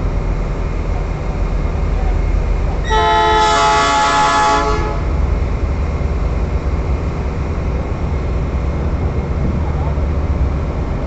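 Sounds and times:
low train rumble: 0.0 - 11.0
locomotive air horn blast: 2.8 - 5.3.

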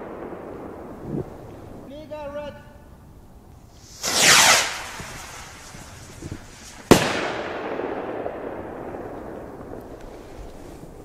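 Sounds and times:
firework rocket whoosh: 3.6 - 11.0
firework bang with echo: 3.9 - 9.8.

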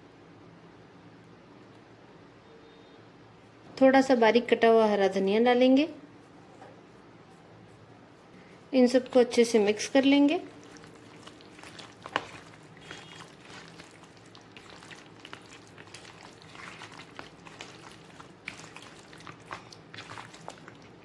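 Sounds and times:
wet squelches of hand mixing: 8.8 - 21.0.

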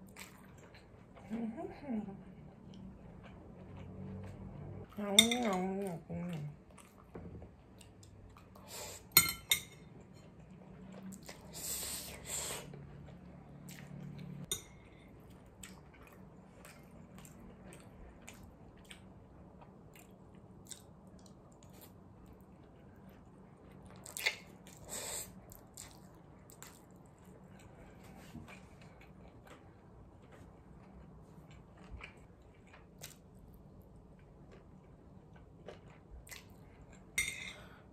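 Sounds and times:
chewing: 5.8 - 8.7, 15.1 - 22.4, 25.4 - 37.2.

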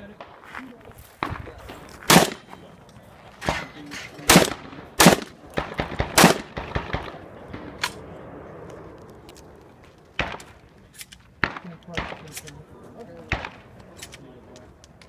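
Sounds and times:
shotgun shots: 1.2 - 2.5, 3.4 - 8.2, 10.2 - 10.6, 11.4 - 12.6, 13.2 - 14.0
gun clicks and clanks: 6.6 - 8.0, 8.6 - 15.0.

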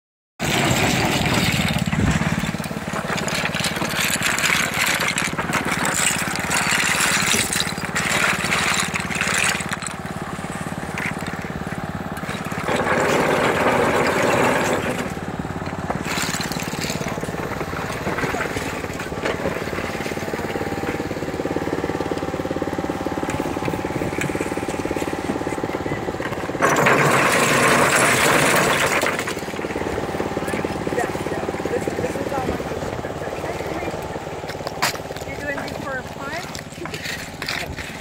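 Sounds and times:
oyster shells clattering: 0.4 - 11.6, 12.2 - 20.0, 23.3 - 29.6
small engine running: 0.4 - 38.0.

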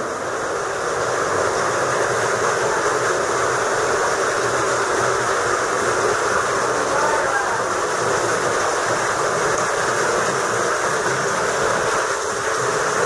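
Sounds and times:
waterfall pouring into sea: 0.0 - 13.0.

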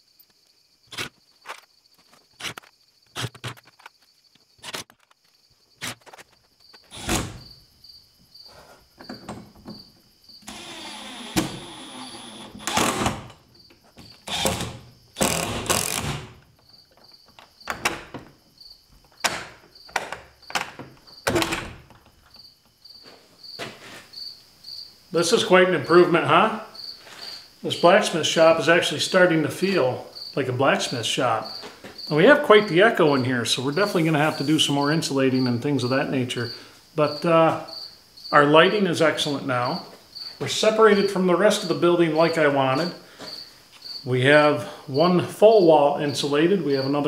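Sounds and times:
cricket chirping: 0.0 - 47.0
power tool whirring: 10.4 - 13.2, 14.3 - 16.2.

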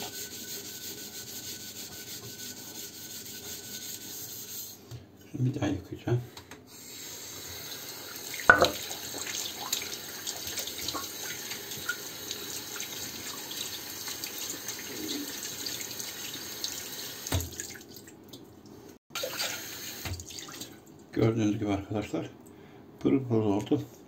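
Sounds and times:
tap water running into sink: 7.5 - 18.0, 19.2 - 20.7.

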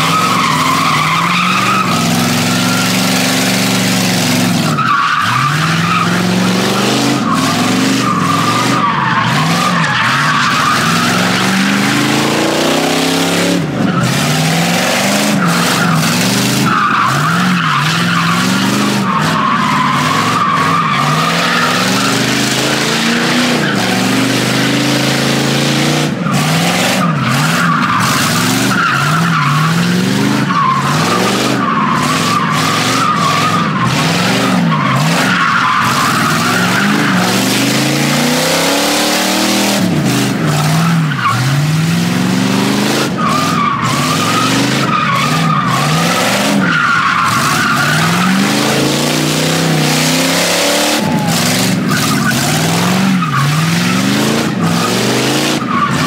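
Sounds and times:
car engine revving: 0.0 - 56.0
tyres squealing on asphalt: 0.0 - 56.0.

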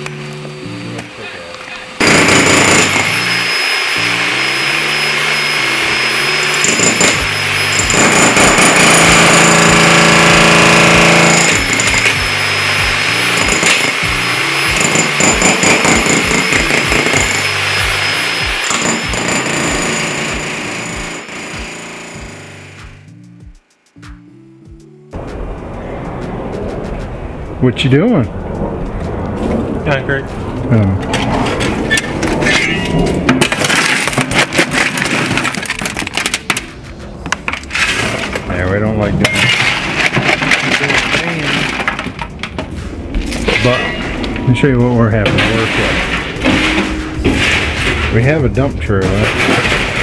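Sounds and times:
background music: 0.1 - 29.3
jackhammer hammering concrete: 2.0 - 23.0
shovel scraping concrete rubble: 31.2 - 36.6, 37.4 - 38.6, 39.2 - 42.7, 43.3 - 44.2, 45.2 - 48.4, 49.0 - 50.0.

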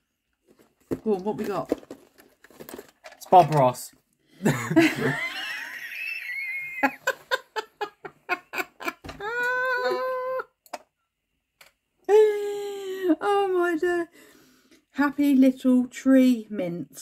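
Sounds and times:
woman squealing and laughing: 8.3 - 10.5.

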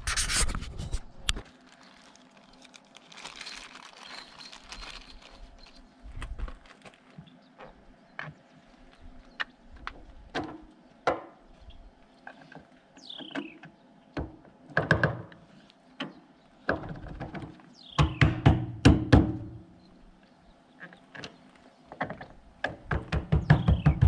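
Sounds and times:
bird call: 13.0 - 13.7.

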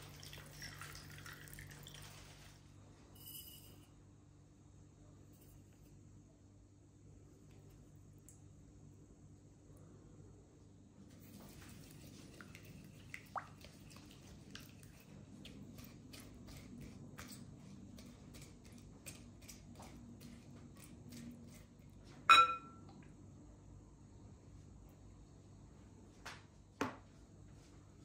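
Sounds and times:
glass cup clinking bowl: 3.2 - 3.9, 22.3 - 22.9.

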